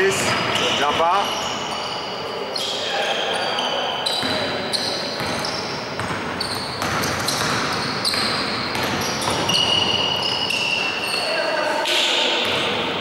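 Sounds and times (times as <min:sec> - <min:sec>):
sneaker squeaks: 0:00.0 - 0:13.0
basketball bouncing: 0:04.2 - 0:04.6, 0:05.2 - 0:10.9, 0:12.4 - 0:12.9.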